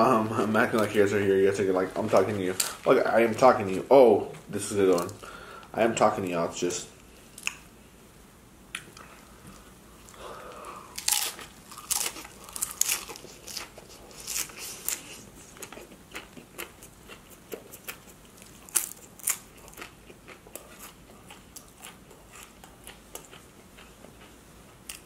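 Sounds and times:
chips crunching while chewing: 0:11.0 - 0:24.3.

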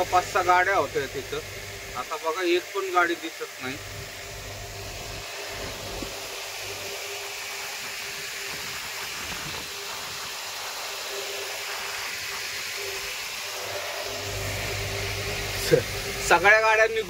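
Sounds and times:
steady hissing noise: 0:00.0 - 0:17.0
low hum: 0:12.8 - 0:17.0.

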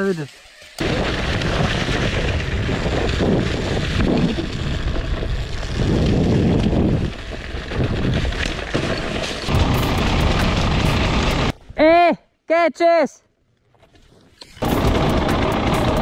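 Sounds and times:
wind buffeting microphone: 0:00.8 - 0:08.6
dirt bike engine running: 0:00.8 - 0:11.6, 0:14.6 - 0:16.0.

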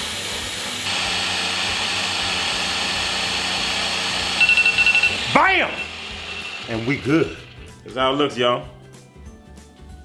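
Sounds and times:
blender motor running: 0:00.0 - 0:07.8
phone timer beeping: 0:04.3 - 0:07.5.

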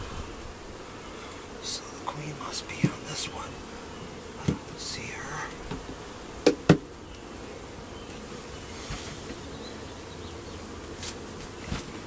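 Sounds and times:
honeybees buzzing: 0:00.0 - 0:12.0
hive tool knocking on wood: 0:02.8 - 0:03.1, 0:04.4 - 0:04.7, 0:05.6 - 0:06.9.

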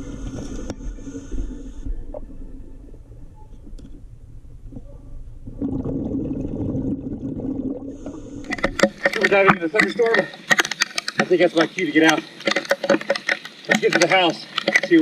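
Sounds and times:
muffled underwater rumble and gurgling: 0:00.0 - 0:10.4.

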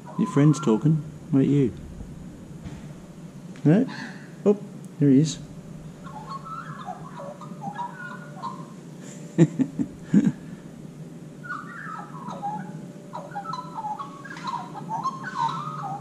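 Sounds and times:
magpie warbling: 0:00.0 - 0:03.5, 0:05.1 - 0:09.0, 0:11.4 - 0:16.0
sharp knocks: 0:01.6 - 0:03.7.

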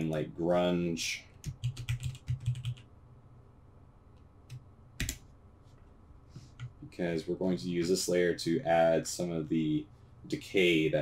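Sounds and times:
keyboard typing: 0:01.4 - 0:02.9, 0:04.5 - 0:05.2.

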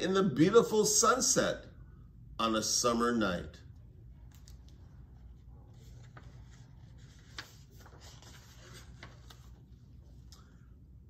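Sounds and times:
paper pages rustling: 0:04.3 - 0:10.4.

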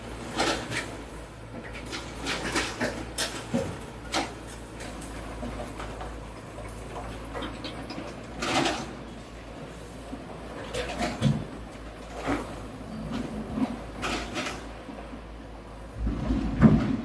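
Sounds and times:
low engine rumble: 0:00.0 - 0:17.0.

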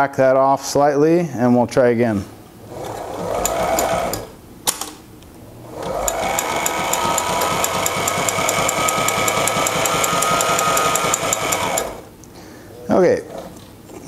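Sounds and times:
sewing machine motor hum: 0:02.6 - 0:04.4, 0:05.5 - 0:12.1
sewing machine stitch ticking: 0:02.7 - 0:04.3, 0:05.7 - 0:12.1
sewing machine click: 0:05.8 - 0:12.1.

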